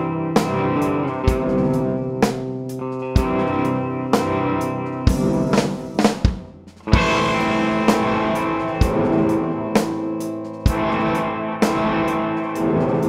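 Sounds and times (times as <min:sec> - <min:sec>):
electric guitar chords: 0:00.0 - 0:13.0
heavy drum hits: 0:05.1 - 0:10.0.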